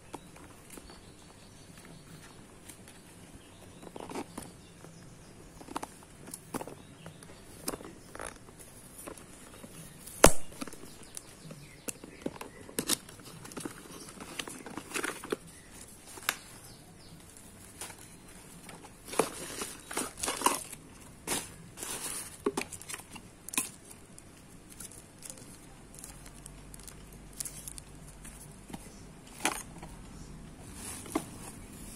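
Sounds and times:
cardboard box rustling: 0:12.2 - 0:16.4, 0:17.7 - 0:23.2, 0:30.6 - 0:31.9.

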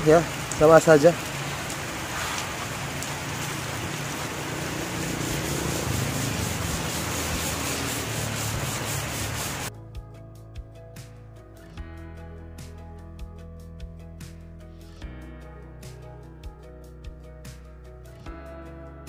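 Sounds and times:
sandpaper rubbing: 0:02.1 - 0:02.5, 0:04.6 - 0:09.7
background music with steady beat: 0:09.4 - 0:19.0.

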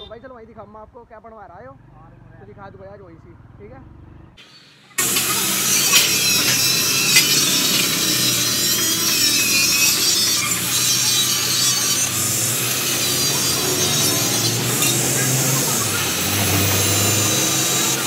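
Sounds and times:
angle grinder cutting steel: 0:04.4 - 0:18.0.

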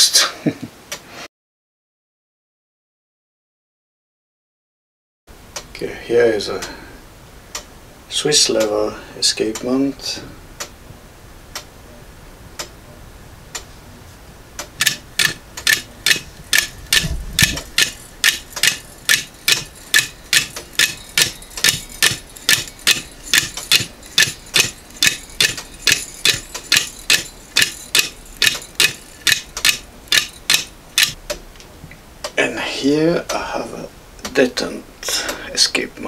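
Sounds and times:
escapement ticking: 0:14.6 - 0:31.2.

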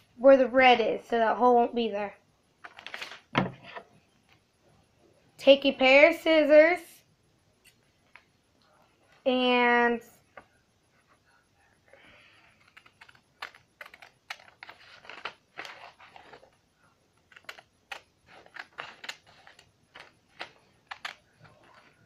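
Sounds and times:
scissors snipping paper: 0:12.6 - 0:16.6, 0:17.2 - 0:22.0.

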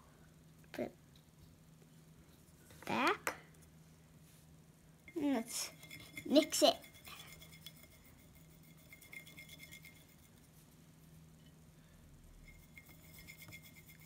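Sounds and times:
stick stirring in a bowl: 0:05.1 - 0:10.8, 0:12.4 - 0:14.0.

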